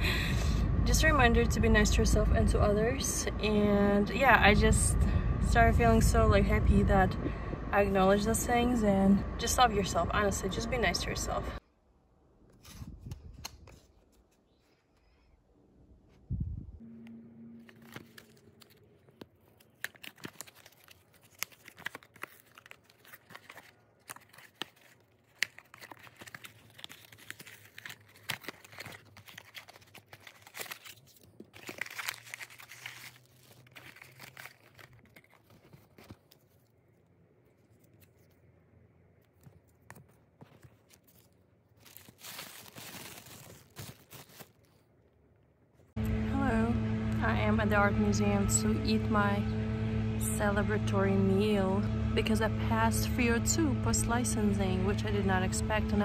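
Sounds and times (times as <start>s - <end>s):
cardboard tearing and crinkling: 17.6s - 36.8s, 40.4s - 44.9s.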